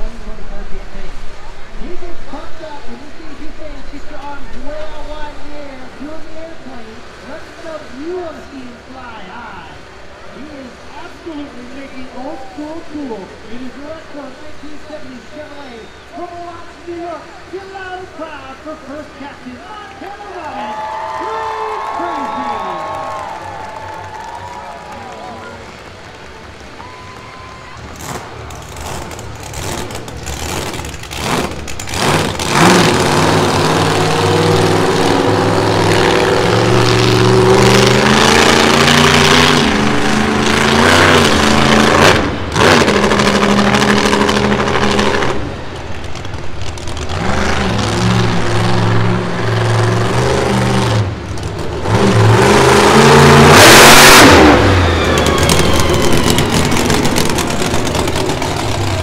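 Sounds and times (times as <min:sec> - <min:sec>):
monster truck engine revving: 0:20.0 - 0:59.0.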